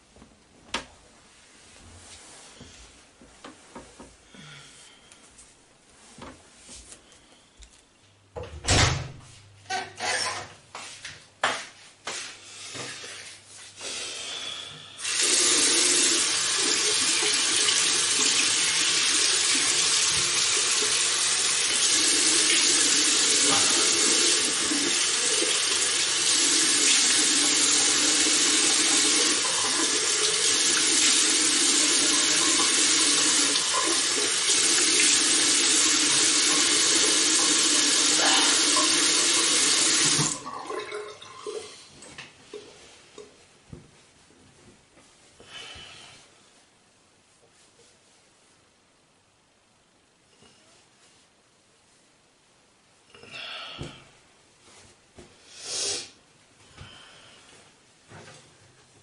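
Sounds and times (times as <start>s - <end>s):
water running into sink: 15.0s - 41.8s.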